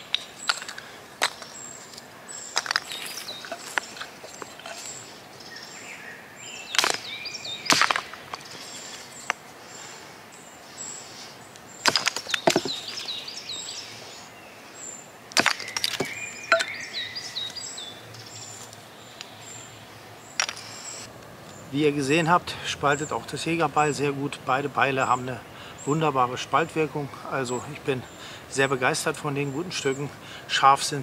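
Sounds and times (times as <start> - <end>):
birds chirping: 0.0 - 31.0
hatchet chopping wood: 6.8 - 7.1, 7.7 - 8.2, 11.8 - 12.9, 15.4 - 16.7.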